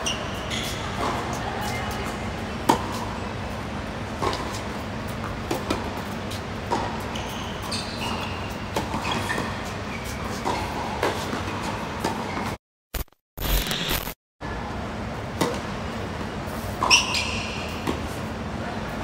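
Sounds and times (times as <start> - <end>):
shoe squeaks: 0.0 - 1.0, 7.1 - 10.9, 16.9 - 17.8.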